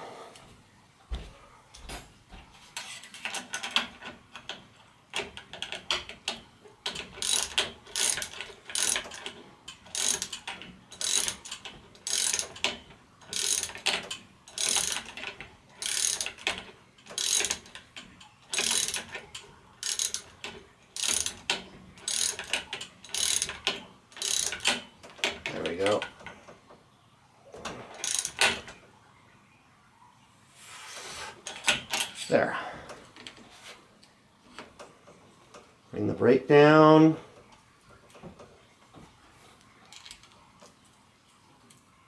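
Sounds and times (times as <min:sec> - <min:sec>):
ratchet wrench clicking: 0:06.9 - 0:17.8, 0:18.5 - 0:19.2, 0:19.8 - 0:24.8, 0:28.0 - 0:28.5.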